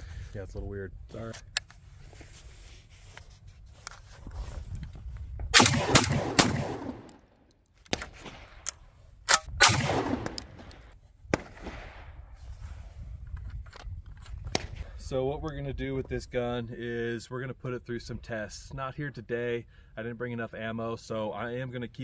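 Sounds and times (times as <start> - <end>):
shotgun shots with echo: 5.6 - 7.2, 9.6 - 12.1.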